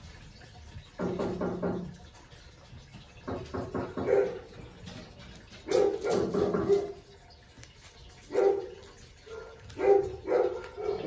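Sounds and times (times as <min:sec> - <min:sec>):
puppies yapping: 0:03.9 - 0:07.2, 0:08.2 - 0:11.0.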